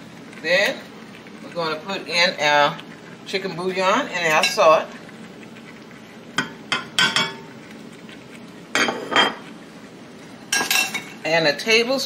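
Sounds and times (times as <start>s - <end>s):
utensils clinking on metal pot: 10.5s - 11.2s.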